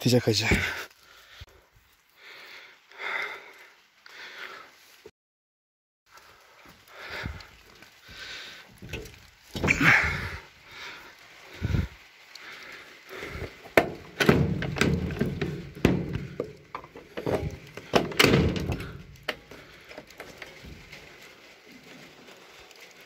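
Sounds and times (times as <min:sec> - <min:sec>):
rustling: 0:06.1 - 0:23.0.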